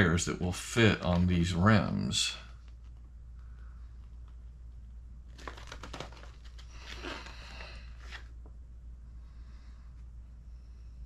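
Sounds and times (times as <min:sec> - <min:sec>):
low steady hum: 0:00.0 - 0:11.0
paper pages rustling: 0:05.3 - 0:08.4.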